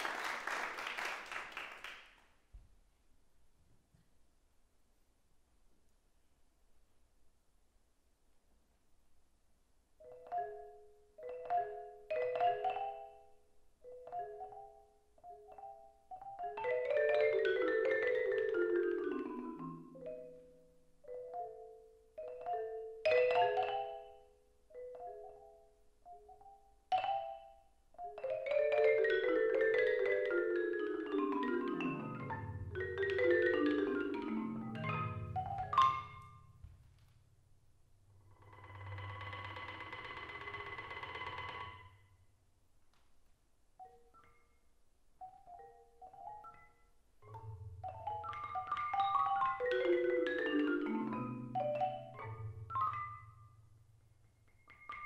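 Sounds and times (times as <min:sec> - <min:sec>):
marimba played with mallets: 0:10.0 - 0:36.6, 0:45.2 - 0:55.0.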